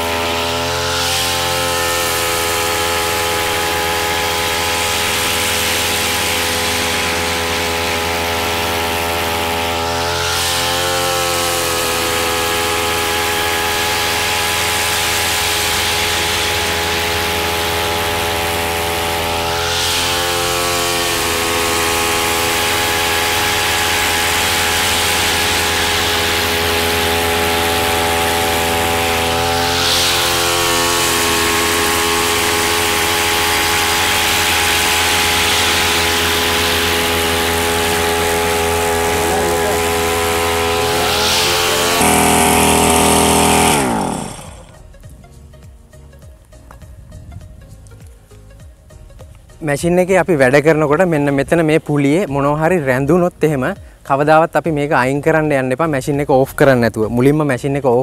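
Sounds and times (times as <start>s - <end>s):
brush cutter engine running: 0.0s - 45.0s, 49.6s - 58.0s
trimmer line cutting grass: 0.0s - 45.0s, 49.4s - 58.0s.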